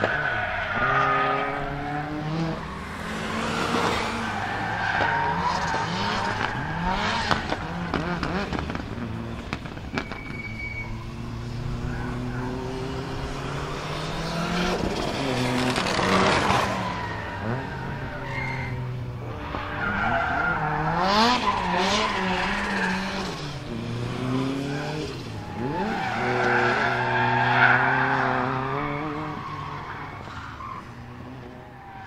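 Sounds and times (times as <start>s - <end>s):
exhaust cracks: 4.1s - 10.9s.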